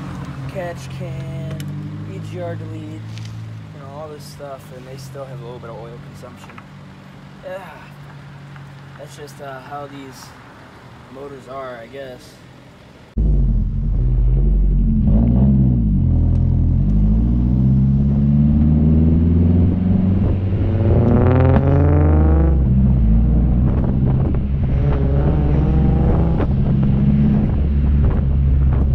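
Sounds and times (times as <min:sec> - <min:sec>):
car engine accelerating: 0:00.0 - 0:06.9, 0:13.1 - 0:28.9.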